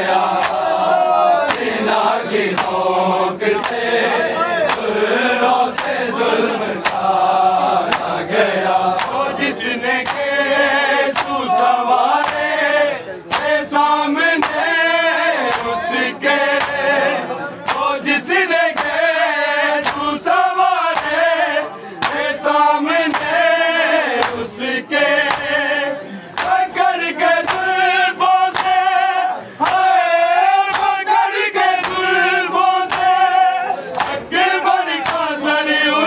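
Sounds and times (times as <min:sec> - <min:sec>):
men chanting: 0:00.0 - 0:36.0
chest-beating slaps: 0:00.4 - 0:00.6, 0:01.5 - 0:01.8, 0:02.5 - 0:02.8, 0:03.6 - 0:03.8, 0:05.7 - 0:06.0, 0:06.8 - 0:07.1, 0:07.8 - 0:08.2, 0:09.0 - 0:09.3, 0:10.0 - 0:10.3, 0:11.1 - 0:12.5, 0:13.3 - 0:13.6, 0:14.4 - 0:14.7, 0:15.4 - 0:15.8, 0:17.6 - 0:17.9, 0:19.8 - 0:20.1, 0:20.9 - 0:21.2, 0:22.0 - 0:22.3, 0:26.3 - 0:26.6, 0:27.4 - 0:27.7, 0:28.5 - 0:28.8, 0:31.8 - 0:32.1, 0:32.8 - 0:33.2, 0:33.9 - 0:34.3.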